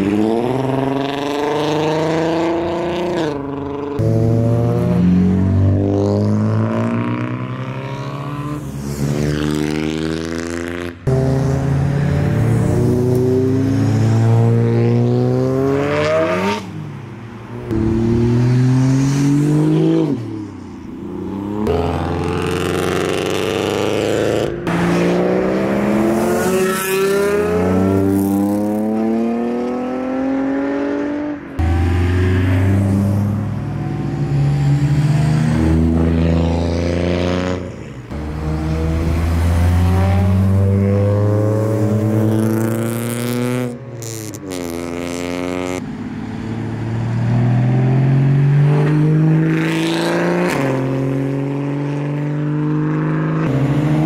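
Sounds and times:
cars accelerating hard: 0:00.0 - 0:54.0.

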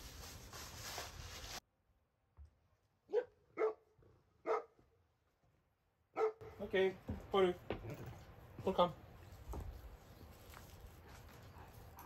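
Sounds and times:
dog barking: 0:03.1 - 0:04.8, 0:06.1 - 0:06.6.

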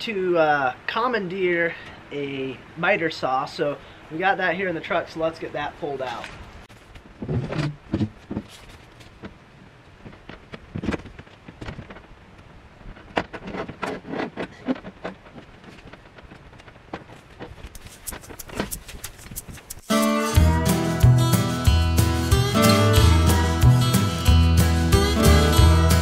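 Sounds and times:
quick run of clicks: 0:13.2 - 0:20.3.

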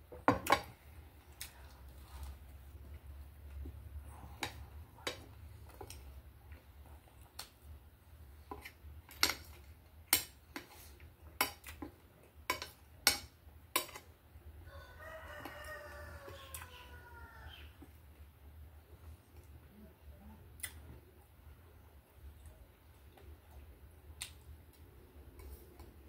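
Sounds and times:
low steady hum: 0:00.0 - 0:26.0
rooster crowing: 0:14.6 - 0:17.7.

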